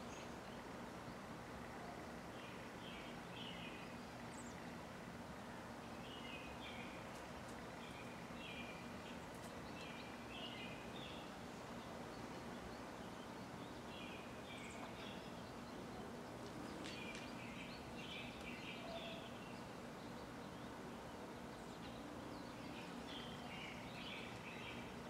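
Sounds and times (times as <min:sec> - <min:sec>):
outdoor hiss: 0:00.0 - 0:25.0
bird chirping: 0:07.8 - 0:25.0.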